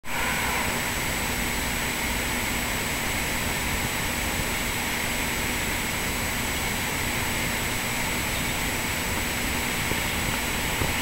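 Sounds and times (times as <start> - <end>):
thin high whine: 0.0 - 3.7
mechanical hum and hiss: 0.0 - 11.0.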